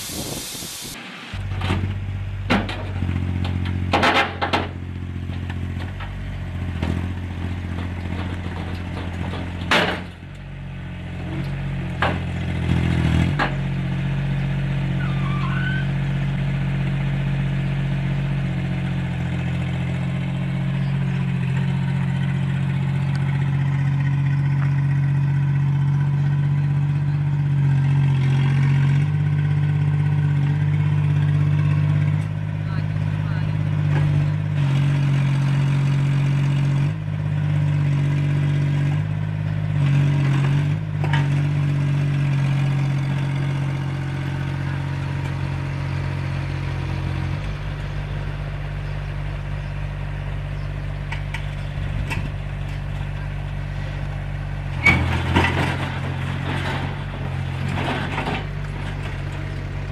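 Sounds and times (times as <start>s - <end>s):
diesel excavator engine running: 0.0s - 59.9s
sharp knocks and clanks: 1.5s - 6.2s, 7.7s - 10.2s, 11.4s - 12.3s.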